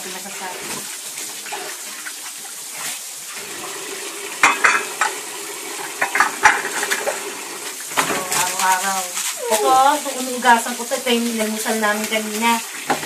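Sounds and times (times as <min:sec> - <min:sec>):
tap water running into basin: 0:00.0 - 0:13.0
dishes clinking and clattering: 0:04.4 - 0:07.3, 0:12.4 - 0:13.0.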